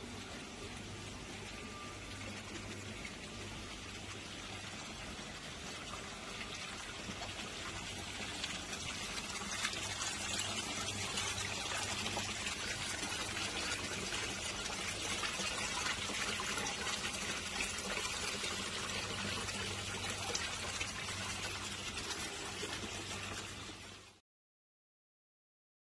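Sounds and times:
low steady hum: 0.0s - 24.2s
water splashing into pond: 5.6s - 23.6s.

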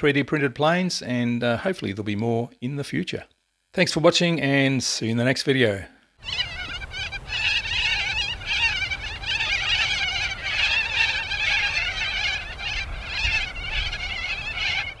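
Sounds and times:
flock of birds calling: 6.2s - 15.0s.

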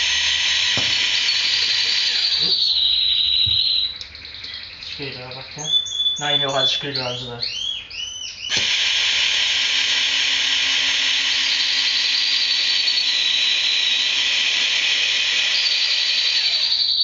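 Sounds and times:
higher motor whine: 0.0s - 2.7s, 8.5s - 17.0s
electric motor whirring whine: 0.0s - 3.9s, 8.5s - 17.0s.

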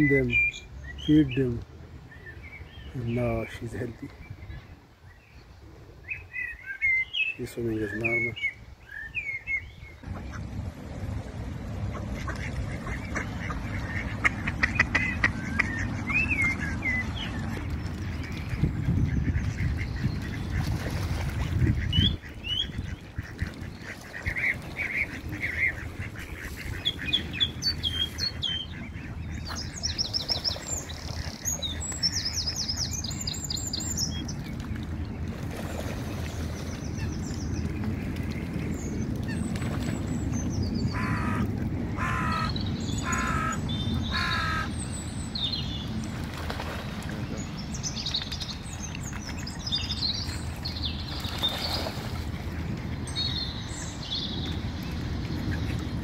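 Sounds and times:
small birds chirping: 0.0s - 10.4s, 12.2s - 35.3s, 42.0s - 52.2s
steady low rumble: 9.6s - 56.0s
ducks quacking: 11.8s - 29.8s, 40.9s - 44.7s.

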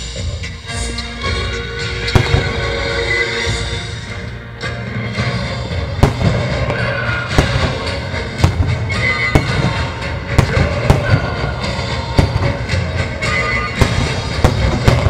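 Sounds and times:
music with sustained tones: 0.0s - 15.0s
fireworks bangs: 2.0s - 3.8s, 5.9s - 15.0s.

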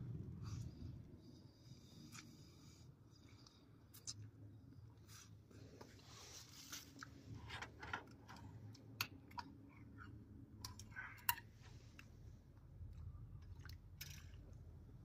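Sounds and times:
chewing: 1.8s - 4.4s.

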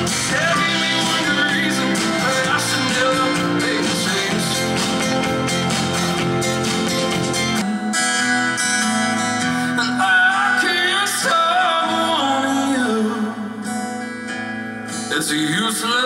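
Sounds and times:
person singing: 0.0s - 5.8s, 9.5s - 13.9s
band playing: 0.0s - 13.0s
acoustic guitar strumming: 0.0s - 16.0s.

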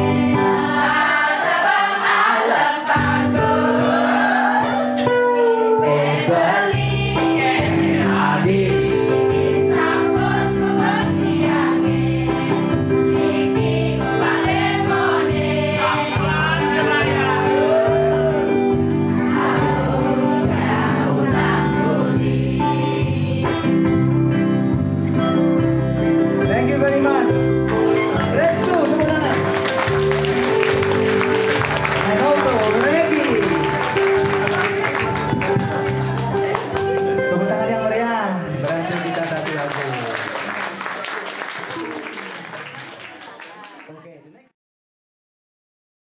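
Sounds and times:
live band playing pop song: 0.0s - 1.9s, 3.0s - 38.5s
voices singing: 0.0s - 23.8s.

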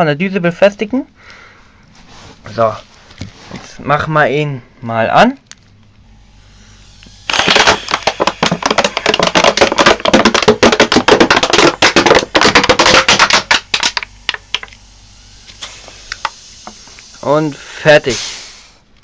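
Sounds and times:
refrigerator compressor hum: 5.8s - 19.0s
plastic bottle crackling and popping: 7.3s - 14.8s.

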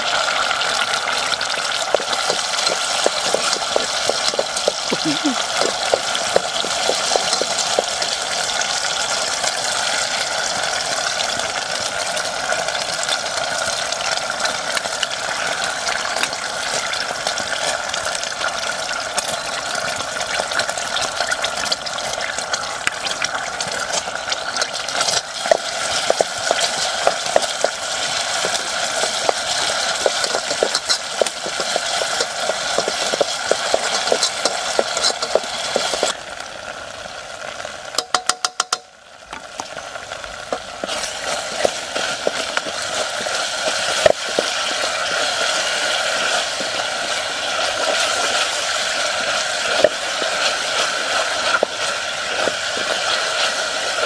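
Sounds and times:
hot oil sizzling and crackling: 0.0s - 54.0s
utensil clicking against pot: 25.0s - 36.1s, 38.0s - 38.9s.

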